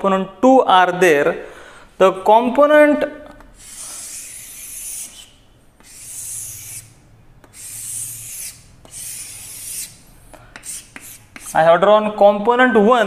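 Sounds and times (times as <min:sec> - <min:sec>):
chalk scratching on blackboard: 0:03.6 - 0:11.7.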